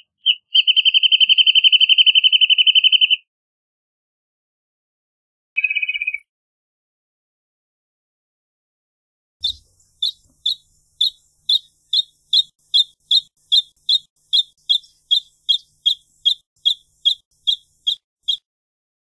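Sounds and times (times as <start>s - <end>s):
bird singing short sharp notes: 9.4s - 18.4s.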